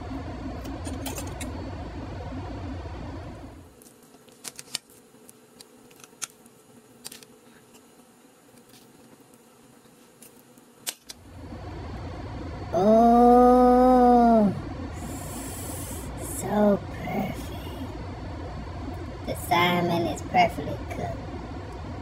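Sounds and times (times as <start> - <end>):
steady noisy hum: 0.0 - 22.0.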